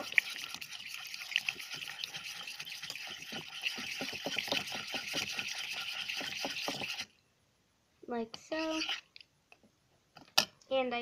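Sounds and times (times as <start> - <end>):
slime stirred in a bowl: 0.0 - 7.2, 8.4 - 9.2.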